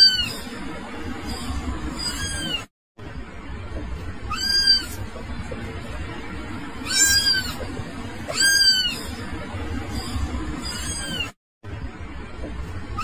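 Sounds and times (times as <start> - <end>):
cat meowing: 0.0 - 0.4, 2.0 - 2.7, 4.3 - 5.0, 6.8 - 7.6, 8.3 - 9.2, 10.6 - 11.4.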